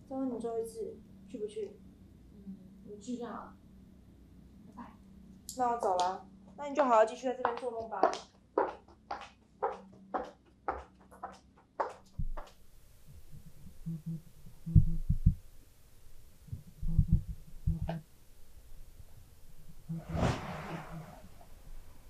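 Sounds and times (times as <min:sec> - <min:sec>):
footsteps on hard floor: 0:08.0 - 0:12.5
deep dull thumps: 0:12.1 - 0:12.4, 0:13.6 - 0:15.4, 0:16.5 - 0:18.0.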